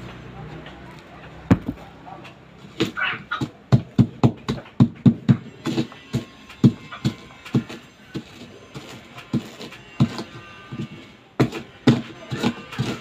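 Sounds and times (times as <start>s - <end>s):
chili peppers being crushed: 1.0s - 1.8s.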